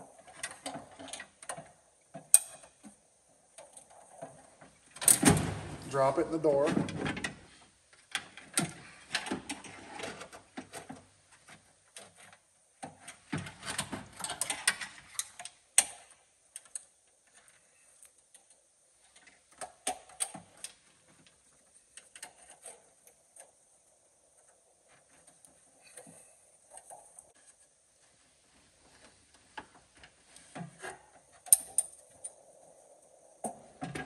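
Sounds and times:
metal clicks and rattles: 8.0 - 23.6, 29.3 - 34.0.

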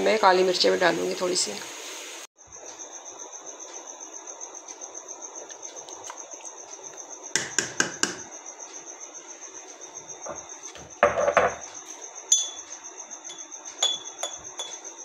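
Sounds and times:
pot simmering with hiss: 0.0 - 11.0
cricket trill: 2.4 - 15.0
metal spoon knocking on pot: 7.4 - 8.3, 11.0 - 11.7, 13.3 - 14.8.

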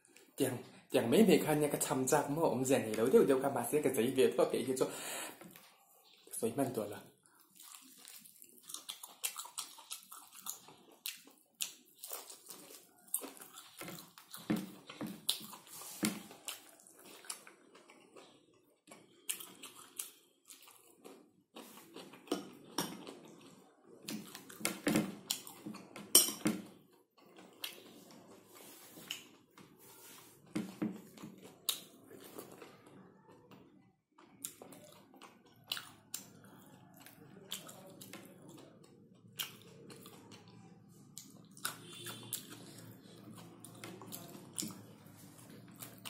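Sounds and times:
wet chewing and lip-smacking: 7.2 - 25.9, 31.0 - 46.0.

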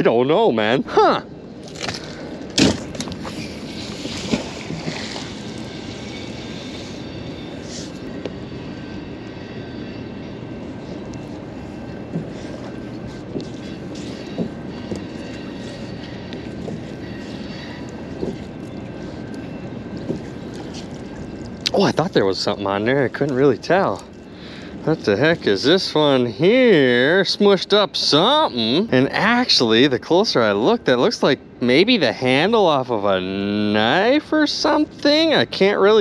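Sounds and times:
boat motor droning: 0.0 - 31.0
rope knocks and splashes: 1.6 - 5.5.

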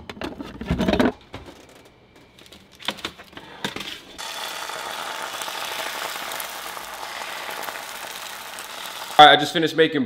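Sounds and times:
liquid egg sizzling in frying pan: 4.2 - 9.5.

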